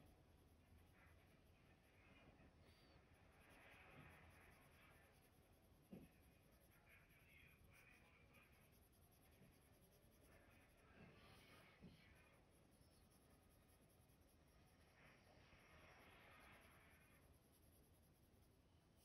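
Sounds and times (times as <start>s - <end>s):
pencil scratching on paper: 2.6s - 14.9s, 16.0s - 19.0s.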